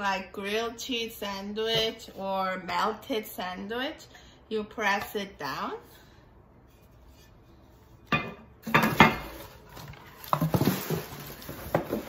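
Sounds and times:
items clicking and clunking: 8.1s - 12.0s
plastic wrap crackling: 9.2s - 12.0s.

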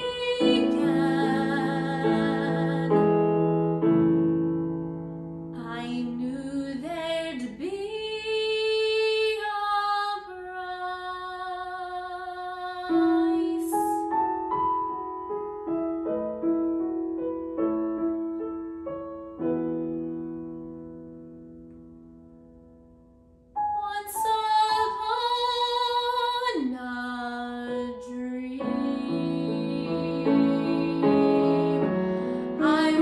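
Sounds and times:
woman singing ballad: 0.0s - 3.7s, 5.5s - 14.2s, 23.6s - 33.0s
piano accompaniment: 0.0s - 33.0s.

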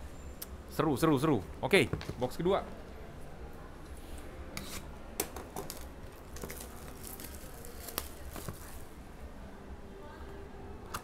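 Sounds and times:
plastic shrink wrap tearing: 5.6s - 8.8s.

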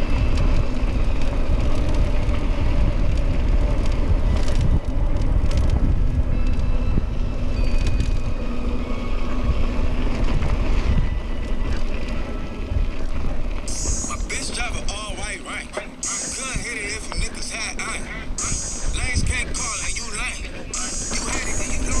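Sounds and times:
bike rattling: 0.0s - 22.0s
wind buffeting microphone: 0.0s - 22.0s
tyres rolling on dirt: 7.2s - 22.0s.

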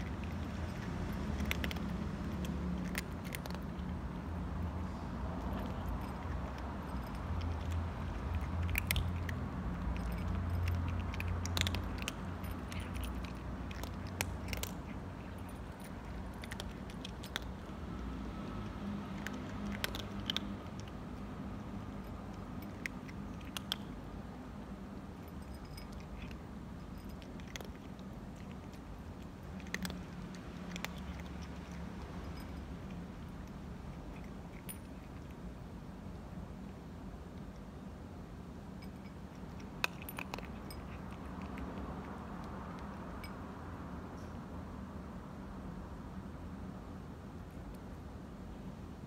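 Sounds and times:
cat crunching dry food: 0.0s - 37.7s, 38.7s - 43.6s
low steady hum: 0.0s - 49.0s.

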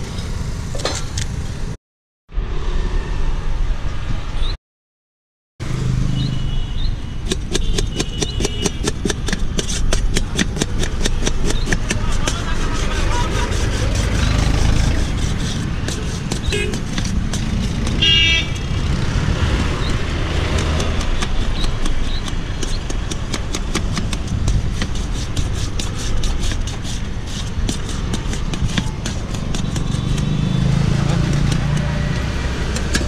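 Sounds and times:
road traffic rumble: 0.0s - 4.6s, 5.6s - 33.0s
knife chopping on metal plate: 7.3s - 18.0s, 19.8s - 30.4s
vehicle horn toot: 16.5s - 16.8s, 18.0s - 18.7s.

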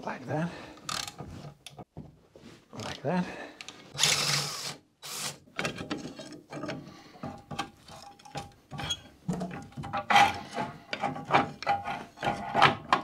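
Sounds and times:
cordless drill spinning: 4.0s - 5.4s.

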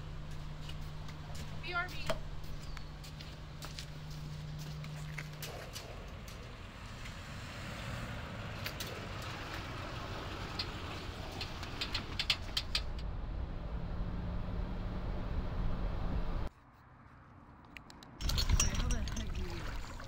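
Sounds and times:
car engine and road rumble: 0.0s - 20.0s
sharp clicks and knocks: 11.3s - 13.1s.

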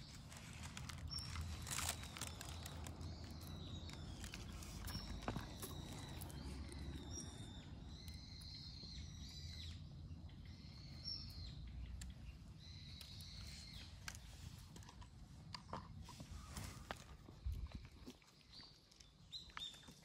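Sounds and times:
cats crunching dry kibble: 0.0s - 8.0s, 12.9s - 20.0s.

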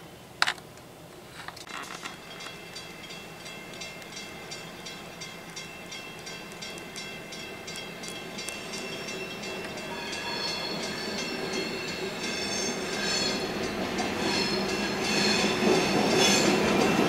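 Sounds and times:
train rumble: 1.3s - 17.0s
level crossing bell ringing: 2.2s - 13.8s.

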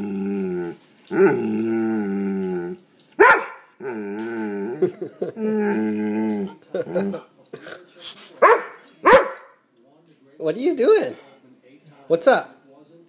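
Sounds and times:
dog growl-howling: 0.0s - 2.8s, 3.8s - 7.1s
dog barking: 3.2s - 3.7s, 8.4s - 9.6s.

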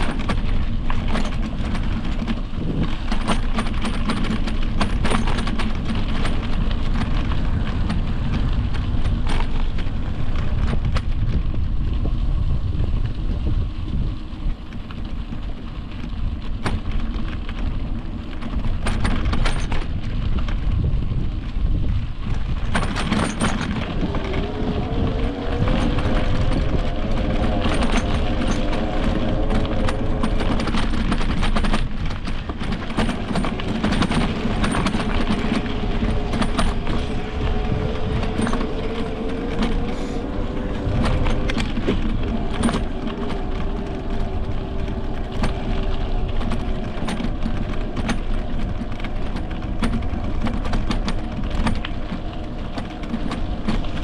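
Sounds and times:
bike rattling and knocking: 0.0s - 54.0s
low rumble: 0.0s - 54.0s
electric bike motor whine: 20.0s - 54.0s.

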